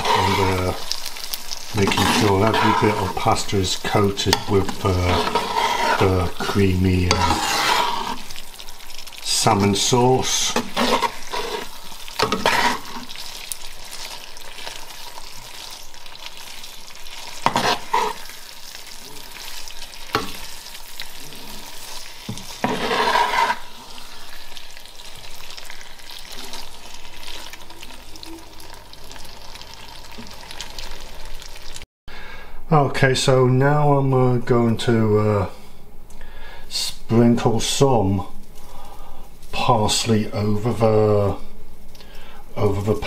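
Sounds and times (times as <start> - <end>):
spatula scraping pan: 0.0 - 27.5
cooking hiss: 0.0 - 32.5, 36.1 - 43.0.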